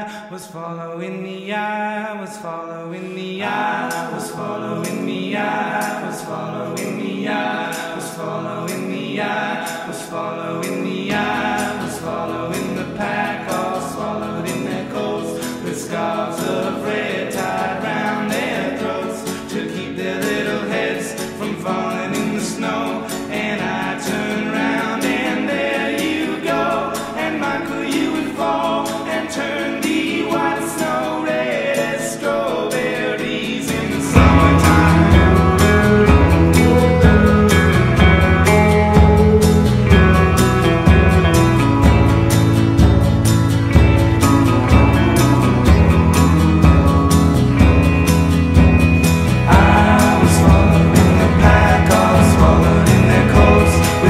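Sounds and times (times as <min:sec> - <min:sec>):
music with sung vocals: 0:00.0 - 0:54.0
heavy bass beat: 0:34.2 - 0:54.0.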